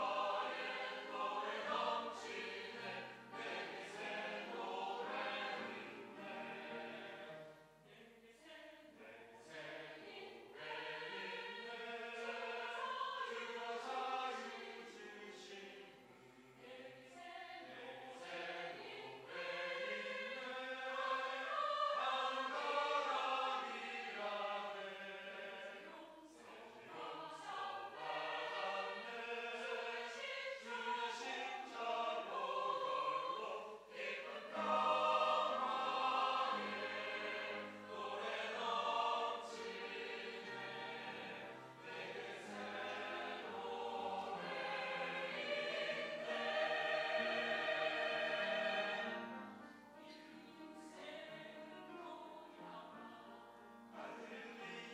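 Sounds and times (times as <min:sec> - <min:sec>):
choir singing a hymn: 0:00.0 - 0:54.9.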